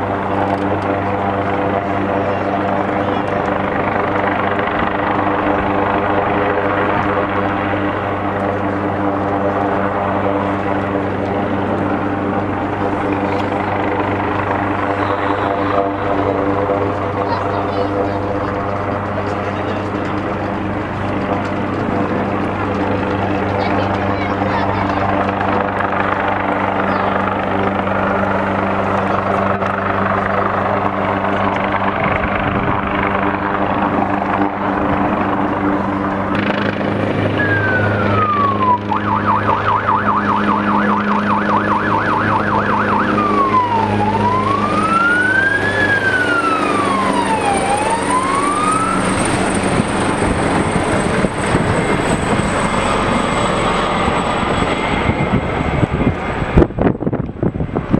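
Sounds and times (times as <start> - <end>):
helicopter rotor: 0.0 - 57.9
siren wailing and yelping: 37.3 - 56.0.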